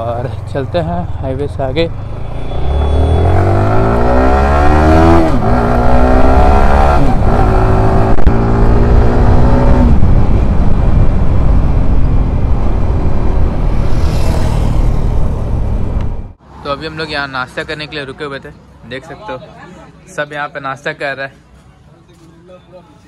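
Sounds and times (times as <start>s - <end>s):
motorcycle engine accelerating: 1.9s - 16.4s
wind rush at cruising speed: 6.8s - 16.4s.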